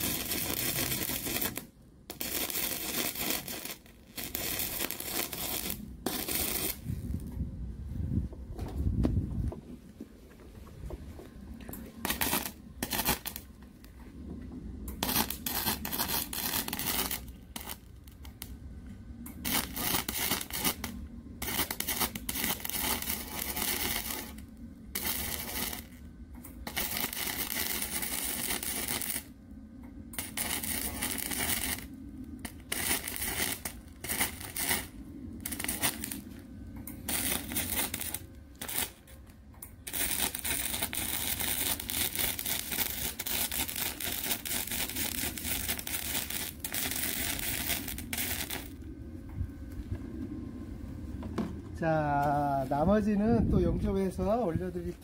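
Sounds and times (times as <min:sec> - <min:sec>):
welder arc crackling: 0:00.0 - 0:07.4, 0:11.7 - 0:14.0, 0:14.8 - 0:49.9.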